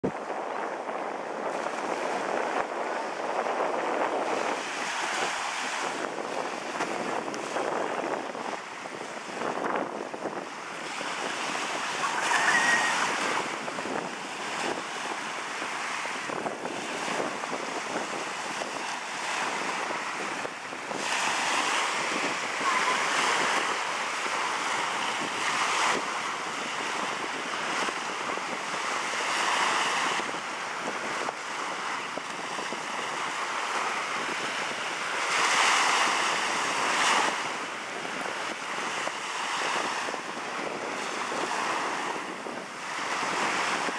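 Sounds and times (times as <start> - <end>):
small waves breaking on beach: 0.0 - 43.9.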